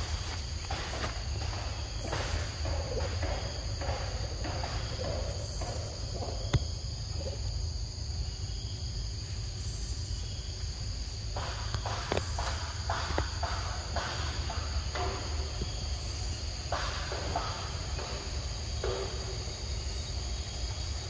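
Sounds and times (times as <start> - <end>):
footsteps in grass and leaves: 0.0 - 2.5
insects chirring: 0.0 - 21.0.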